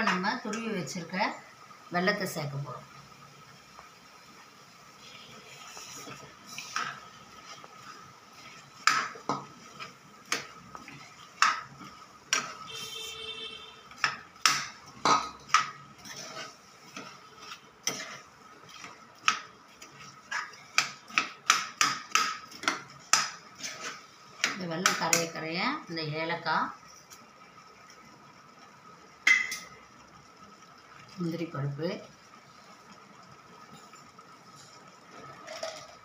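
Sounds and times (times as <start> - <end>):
metal spoon scraping a pan: 5.0 - 25.3.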